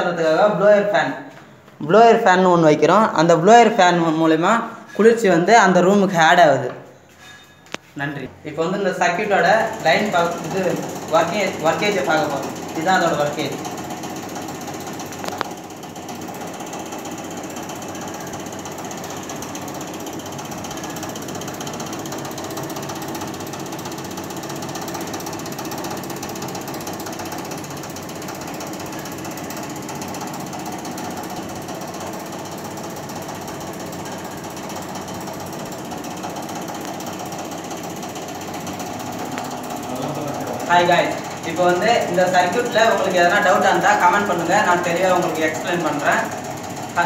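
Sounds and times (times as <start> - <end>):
air conditioner unit running: 0.0 - 47.0.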